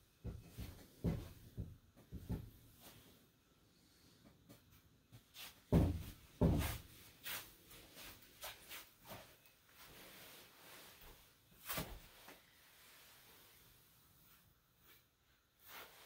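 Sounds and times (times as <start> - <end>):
soft footsteps on tatami mats: 0.2 - 3.1, 4.4 - 12.6.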